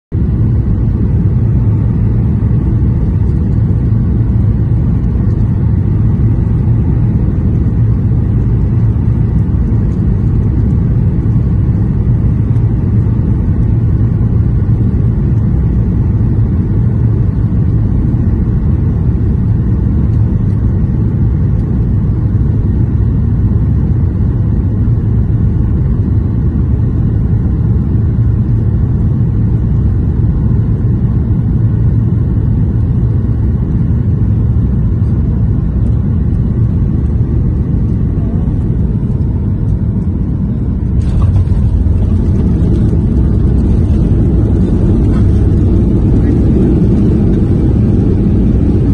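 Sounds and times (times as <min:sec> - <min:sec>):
jet engines roaring: 0:00.2 - 0:48.9
rushing air: 0:39.3 - 0:48.9.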